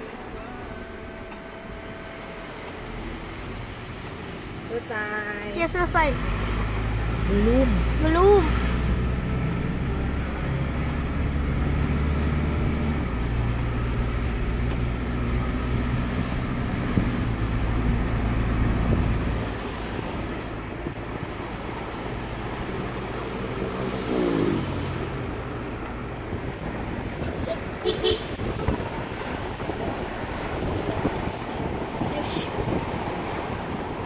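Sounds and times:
car engine and road noise: 0:00.0 - 0:34.0
engine note rising and falling: 0:05.7 - 0:32.0.

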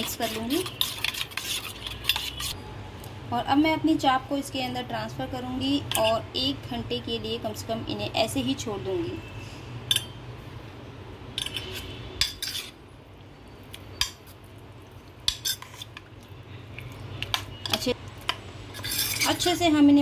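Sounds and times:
utensils clinking against a bowl: 0:00.0 - 0:02.6, 0:11.4 - 0:12.7, 0:17.2 - 0:18.0.

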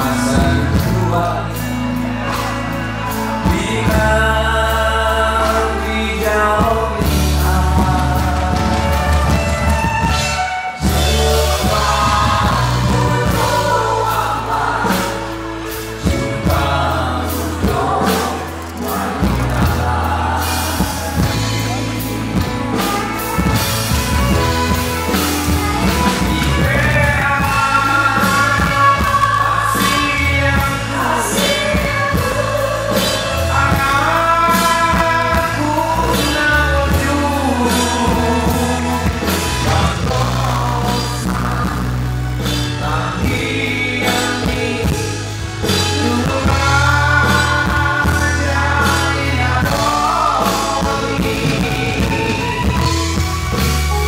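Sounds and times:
live band with bass and drums: 0:00.0 - 0:54.0
man and woman singing duet: 0:00.0 - 0:54.0.

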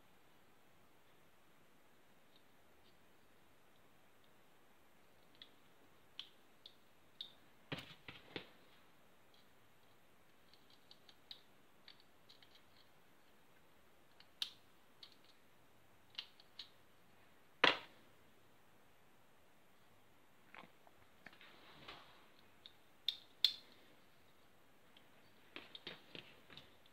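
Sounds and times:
plastic parts clicking: 0:09.3 - 0:12.9, 0:14.1 - 0:15.4, 0:16.1 - 0:16.7, 0:22.4 - 0:23.8.

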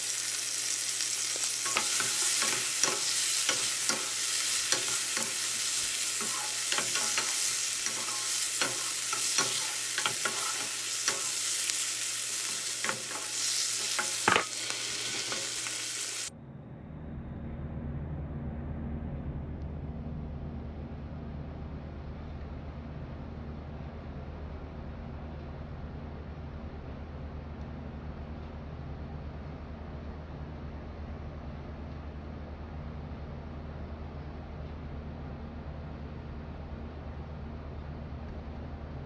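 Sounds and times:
food sizzling in a wok: 0:00.0 - 0:16.3.

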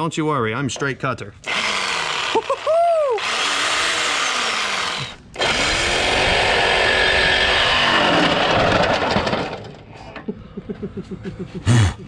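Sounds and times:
reciprocating saw cutting metal pipe: 0:01.5 - 0:10.0.

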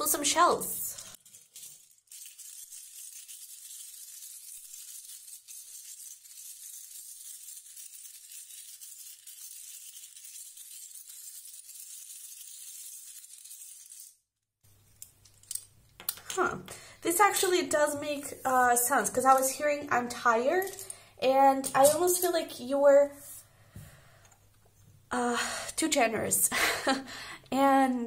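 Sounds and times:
shells rattling in mesh bag: 0:01.0 - 0:10.7.

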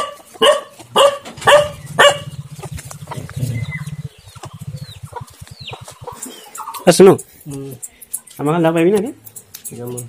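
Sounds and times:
dog barking: 0:00.0 - 0:02.4
low throbbing rumble: 0:01.5 - 0:06.3
faint bird chirps: 0:01.7 - 0:08.5.

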